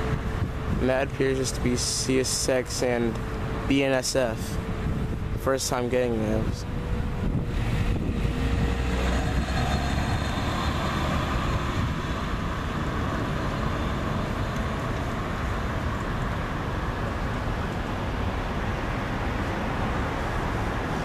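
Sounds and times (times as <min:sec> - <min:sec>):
locomotives rumbling: 0:00.0 - 0:16.2
car passing: 0:00.0 - 0:21.0.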